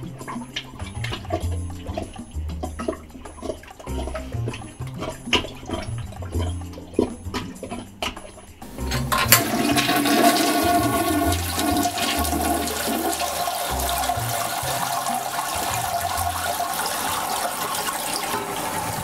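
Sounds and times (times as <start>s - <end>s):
toilet flushing: 8.6s - 19.0s.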